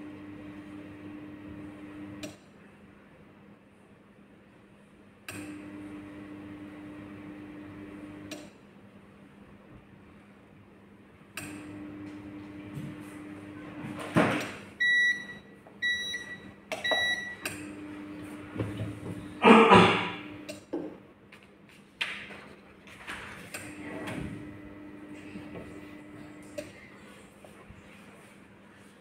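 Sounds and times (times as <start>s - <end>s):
heat press buzzing hum: 0.0s - 2.4s, 5.3s - 8.6s, 11.3s - 20.8s, 23.5s - 26.9s.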